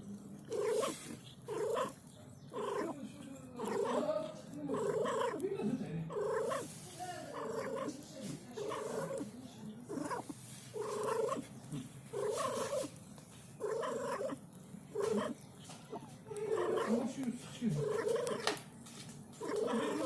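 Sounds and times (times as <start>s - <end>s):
cat crying: 0.5s - 3.0s, 3.6s - 4.1s, 4.7s - 5.4s, 6.1s - 6.7s, 7.3s - 8.0s, 8.6s - 9.3s, 9.9s - 11.5s, 12.1s - 12.9s, 13.6s - 17.0s, 17.8s - 18.6s, 19.4s - 20.0s.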